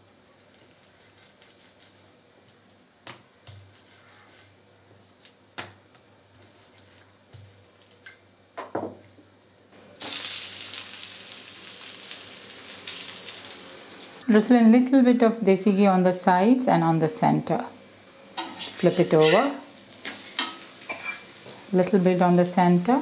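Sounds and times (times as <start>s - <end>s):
dough sizzling on hot pan: 5.2s - 8.2s, 10.0s - 14.2s, 18.4s - 23.0s.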